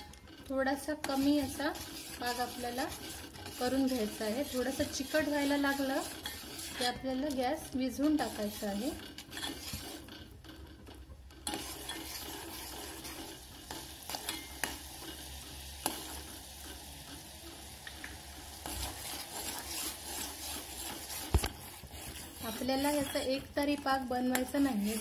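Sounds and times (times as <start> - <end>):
steel ladle scraping a pot: 0.0 - 16.8, 18.5 - 25.0
syrup bubbling in a metal pot: 0.0 - 25.0.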